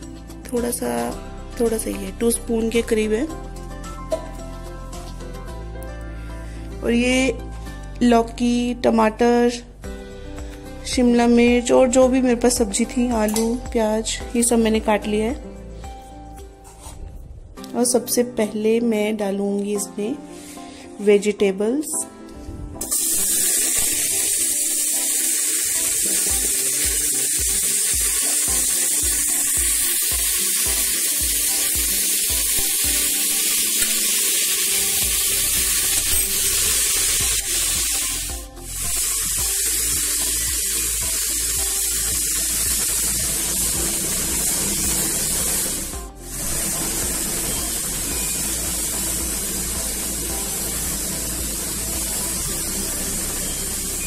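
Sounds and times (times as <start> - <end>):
vegetables sizzling in oil: 22.8 - 54.0.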